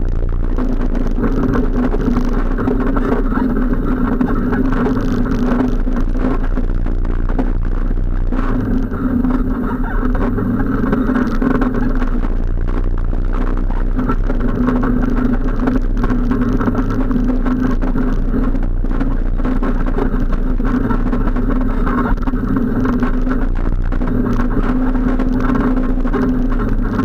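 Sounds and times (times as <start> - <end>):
atv engine running: 0.0 - 27.0.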